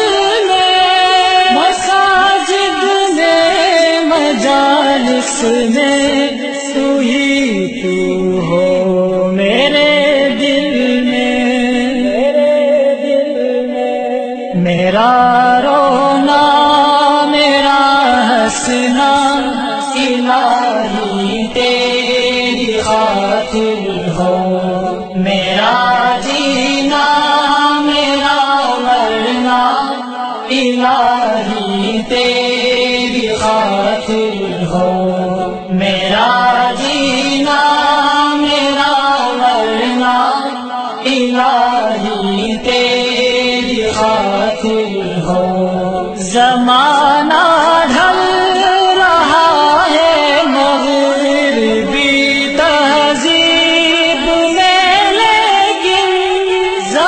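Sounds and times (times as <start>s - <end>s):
person chanting devotional song: 0.0s - 57.0s.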